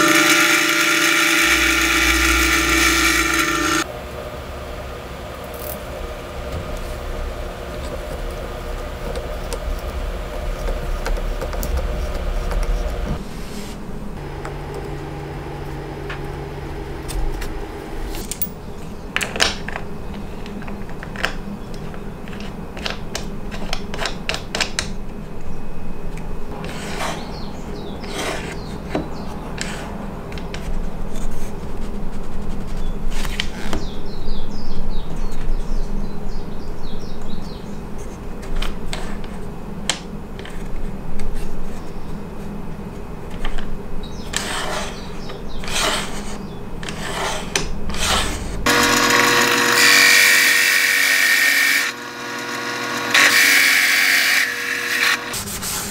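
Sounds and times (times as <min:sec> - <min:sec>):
steady low hum: 0:00.0 - 0:24.2.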